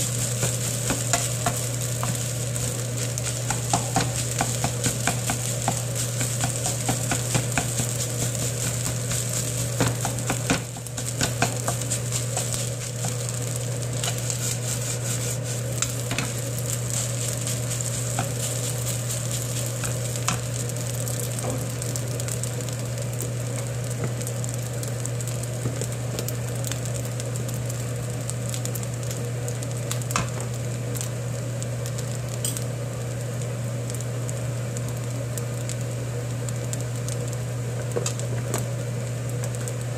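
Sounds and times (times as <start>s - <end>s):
wooden spoon scraping a pan: 0.0s - 20.4s
rice sizzling in a wok: 0.0s - 39.9s
steady low hum: 0.0s - 39.9s.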